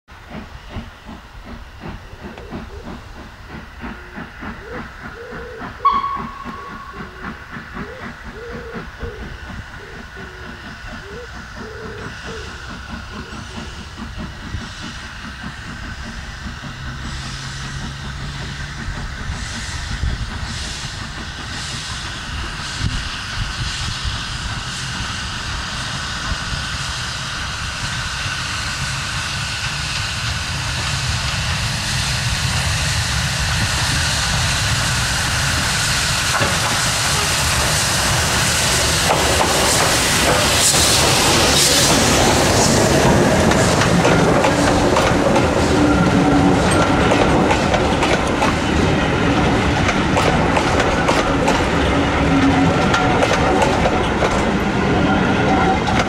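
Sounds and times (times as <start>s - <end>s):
steam locomotive exhaust beats: 0.1s - 56.0s
steam locomotive whistle: 4.0s - 9.2s, 36.8s - 47.6s.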